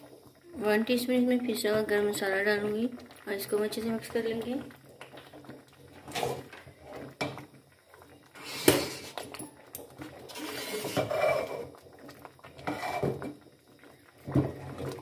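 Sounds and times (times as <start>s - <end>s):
spoon stirring thick stew in pot: 8.7s - 13.4s.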